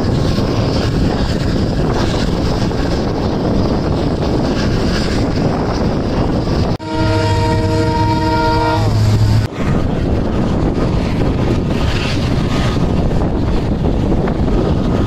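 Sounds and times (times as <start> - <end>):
train rumble: 0.0 - 15.0
wind on microphone: 0.0 - 15.0
train horn: 6.8 - 9.5.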